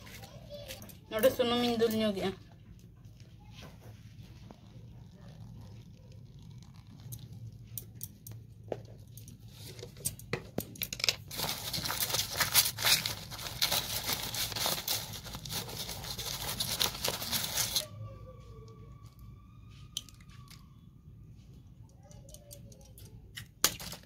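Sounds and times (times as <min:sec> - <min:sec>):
dry leaves crinkling: 0:11.3 - 0:17.8.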